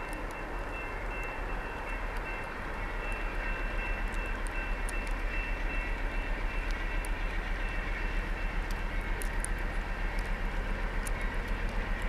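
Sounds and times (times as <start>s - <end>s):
rhythmic pulsing of train: 0.0s - 12.0s
train engine rumble: 0.0s - 12.0s.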